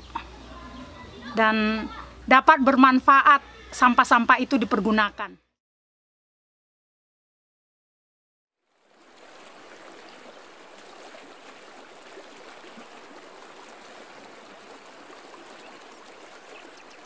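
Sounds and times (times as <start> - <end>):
river water rushing: 8.7 - 17.0.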